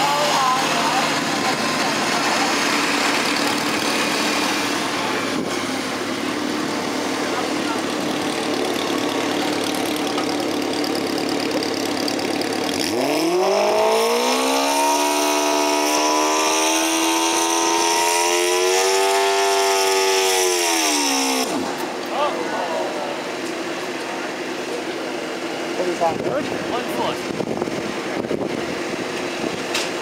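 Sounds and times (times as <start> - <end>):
lawn tractor engine revving: 0.0 - 22.2.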